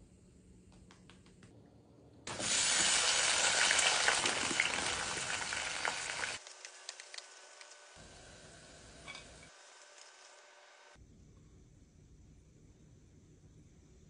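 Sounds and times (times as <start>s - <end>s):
fries sizzling in hot oil: 2.3s - 7.5s.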